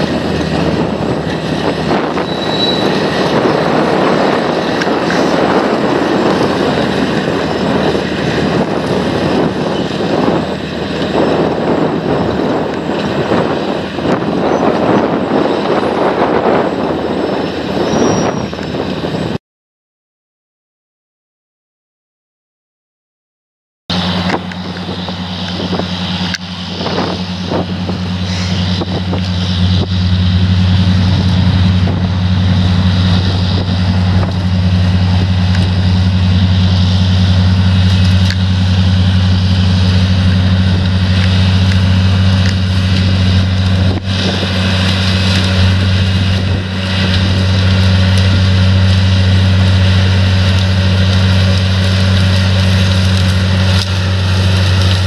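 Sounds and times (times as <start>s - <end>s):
low engine drone: 0.0s - 19.4s, 23.9s - 55.0s.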